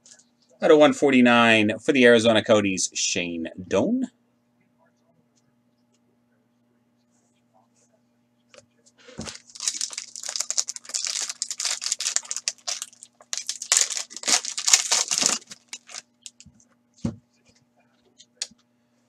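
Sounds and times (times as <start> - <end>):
foil wrapper tearing and crinkling: 9.2 - 16.4.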